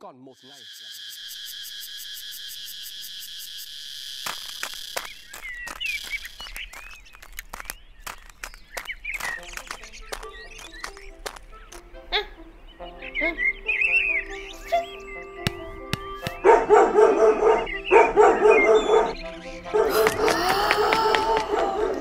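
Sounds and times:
birds chirping: 0:00.0 - 0:22.0
crickets chirring: 0:00.3 - 0:11.8.

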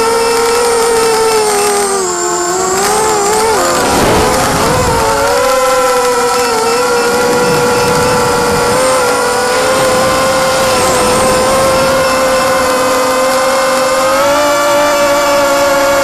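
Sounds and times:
drone motors whining: 0:00.0 - 0:16.0.

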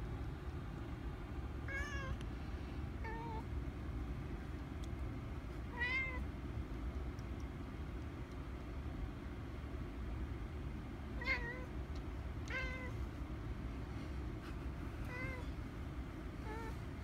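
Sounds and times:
steady low rumble: 0:00.0 - 0:17.0
cat meowing: 0:01.7 - 0:02.2, 0:03.0 - 0:03.5, 0:05.7 - 0:06.2, 0:11.2 - 0:11.7, 0:12.4 - 0:13.0, 0:15.1 - 0:15.5.

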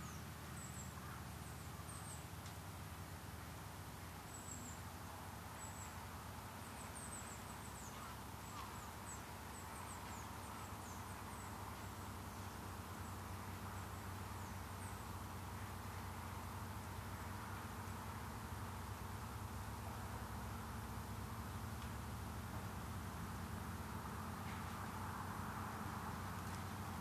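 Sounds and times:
small birds chirping: 0:00.0 - 0:02.6, 0:04.2 - 0:20.0.

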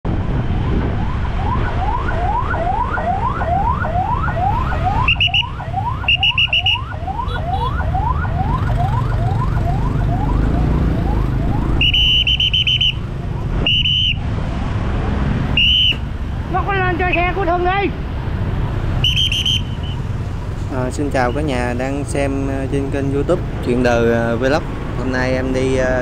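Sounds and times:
traffic rumble: 0:00.0 - 0:26.0
ambulance siren yelping: 0:00.5 - 0:14.2
shrill trilling whistle blasts: 0:05.0 - 0:06.8, 0:11.7 - 0:13.0, 0:13.6 - 0:14.2, 0:15.6 - 0:16.0, 0:19.0 - 0:20.0.

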